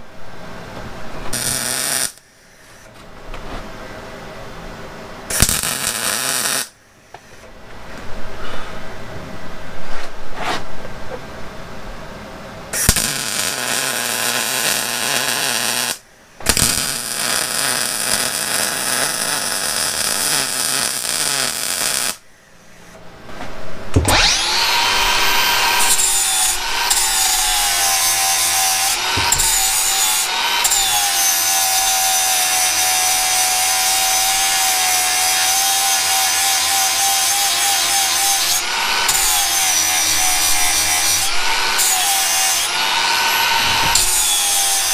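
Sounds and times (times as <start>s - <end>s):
welder crackling: 1.2s - 3.0s, 5.3s - 7.4s, 12.8s - 22.2s, 23.9s - 44.9s
angle grinder grinding: 24.0s - 44.9s.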